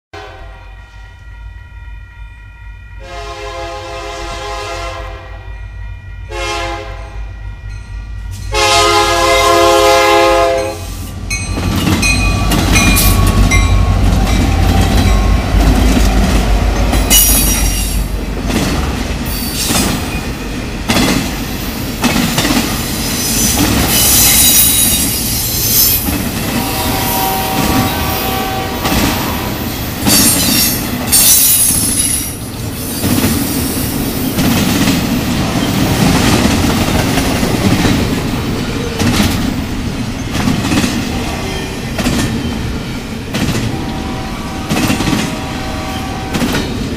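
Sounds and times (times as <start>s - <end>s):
locomotive air horn blasts: 0.2s - 1.0s, 3.0s - 5.5s, 6.3s - 7.4s, 8.4s - 11.2s, 25.7s - 30.7s, 43.7s - 46.7s
locomotive engine rumble: 5.6s - 24.0s
train cars clattering over rails: 11.2s - 43.9s, 44.6s - 46.9s.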